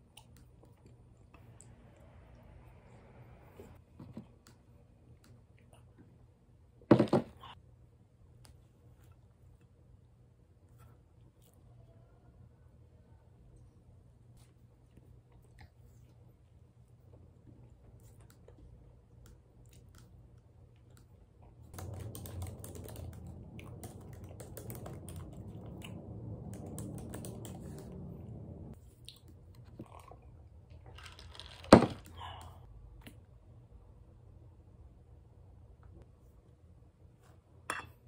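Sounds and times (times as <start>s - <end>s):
typing on laptop keyboard: 21.8s - 28.0s.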